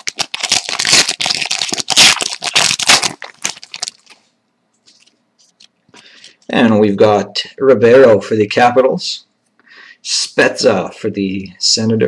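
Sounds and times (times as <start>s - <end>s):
cards and wrapping rustling: 0.0s - 6.4s.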